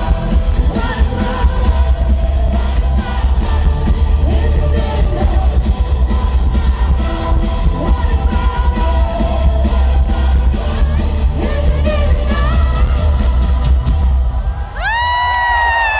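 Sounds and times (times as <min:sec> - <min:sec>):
woman singing: 0:00.0 - 0:05.9, 0:07.6 - 0:13.9
live metal band playing: 0:00.0 - 0:14.2.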